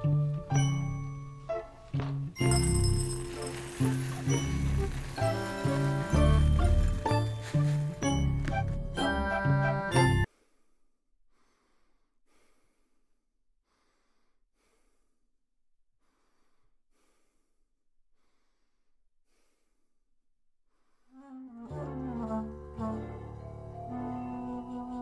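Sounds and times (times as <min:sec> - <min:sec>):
music: 0:00.0 - 0:10.3, 0:21.2 - 0:25.0
man breathing softly: 0:10.3 - 0:15.2, 0:16.0 - 0:20.0.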